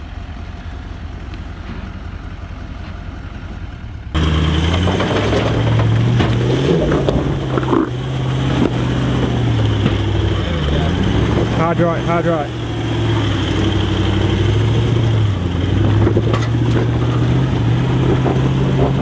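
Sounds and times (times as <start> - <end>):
engine revving: 4.2 - 19.0.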